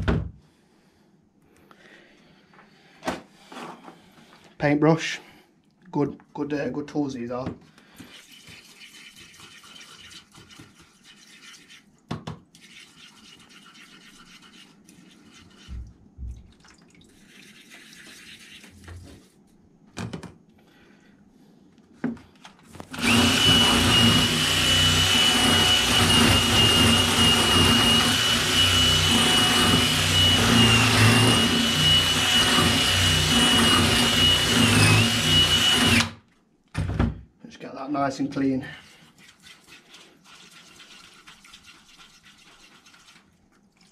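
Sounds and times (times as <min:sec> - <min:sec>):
cordless drill with wire brush: 0:22.8 - 0:36.2.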